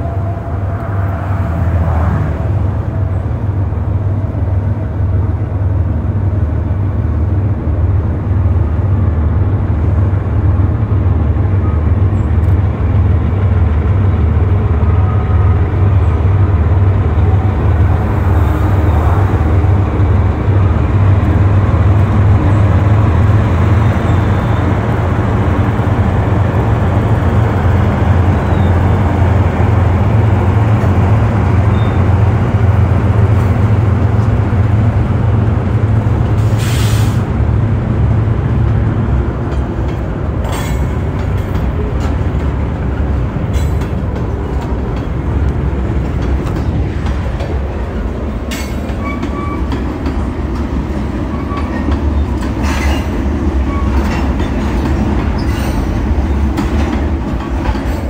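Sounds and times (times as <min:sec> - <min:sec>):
diesel locomotive rumble: 0:00.0 - 0:58.0
train cars rolling on rails: 0:00.0 - 0:58.0.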